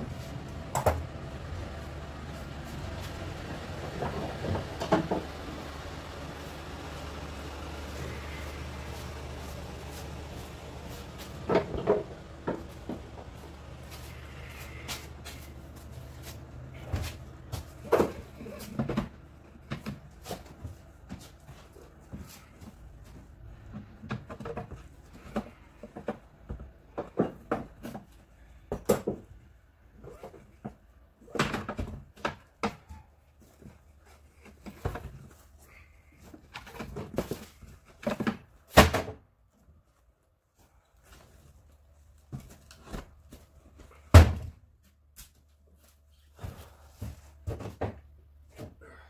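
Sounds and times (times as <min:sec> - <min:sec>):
boxes knocking and thumping: 0:02.7 - 0:22.8, 0:23.7 - 0:29.3, 0:36.2 - 0:39.2, 0:42.3 - 0:44.6, 0:46.4 - 0:48.8.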